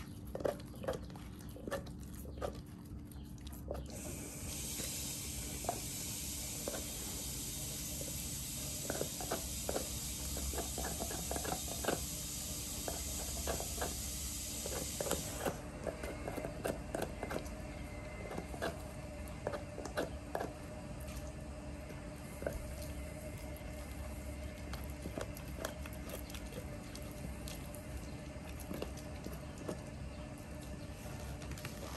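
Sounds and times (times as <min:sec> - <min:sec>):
dog gnawing on bone: 0:00.0 - 0:31.9
steady hiss: 0:04.0 - 0:15.6.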